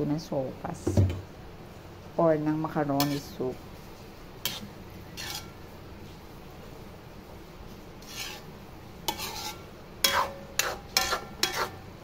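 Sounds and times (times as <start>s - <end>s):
metal spatula scraping a wok: 2.9s - 3.5s, 4.4s - 5.7s, 7.9s - 12.0s.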